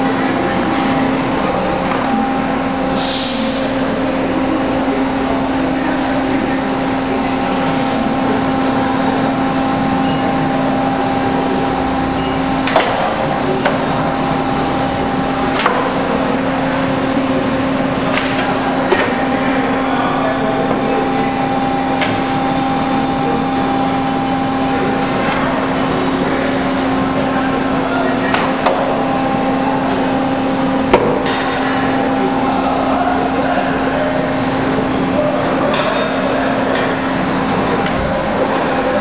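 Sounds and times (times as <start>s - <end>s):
hydraulic power unit humming: 0.0s - 39.0s
brief hiss: 2.9s - 3.6s.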